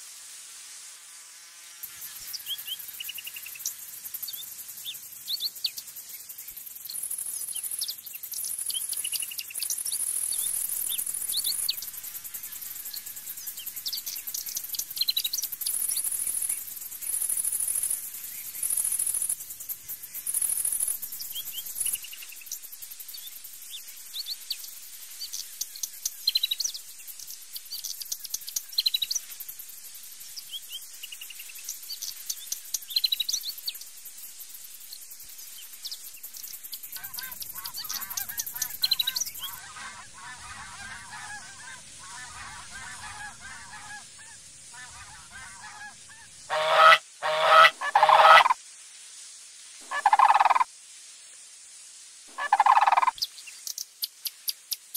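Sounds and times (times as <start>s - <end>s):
insect hiss: 0.0s - 54.9s
small birds chirping: 1.8s - 48.6s, 49.9s - 50.7s, 52.4s - 54.9s
large birds honking: 39.6s - 44.0s, 44.8s - 48.6s, 49.9s - 50.6s.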